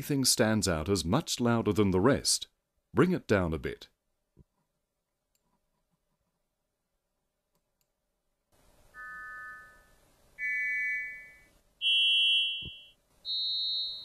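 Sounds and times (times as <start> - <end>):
short multi-tone chimes: 9.0 - 14.0.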